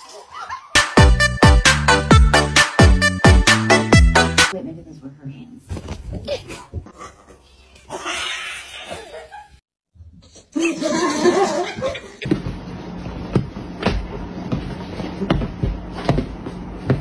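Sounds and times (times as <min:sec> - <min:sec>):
person laughing: 0:07.9 - 0:09.6, 0:10.5 - 0:12.2.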